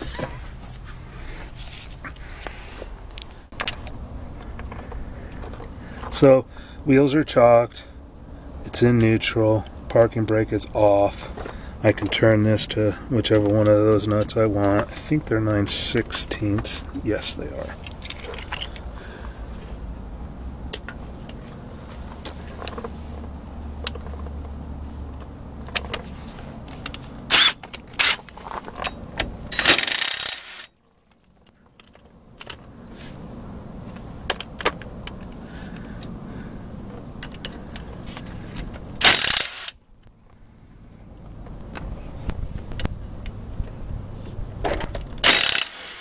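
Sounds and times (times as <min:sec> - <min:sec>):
cordless drill bursts: 0:29.6 - 0:30.7, 0:39.0 - 0:39.8, 0:45.2 - 0:46.0.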